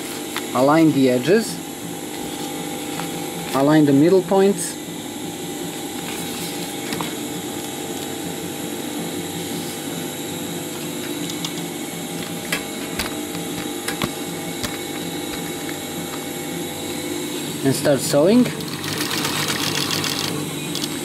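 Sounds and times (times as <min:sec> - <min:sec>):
sewing machine motor humming: 0:18.3 - 0:21.0.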